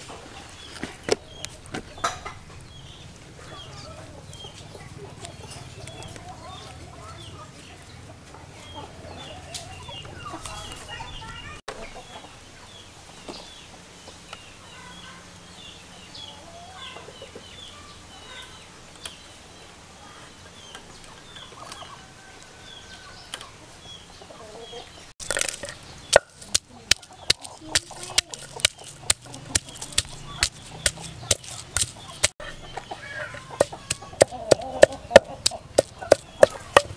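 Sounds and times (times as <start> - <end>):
chickens clucking and peeping: 0.0 - 36.9
wooden pestle pounding in mortar: 25.2 - 32.4, 33.4 - 36.9.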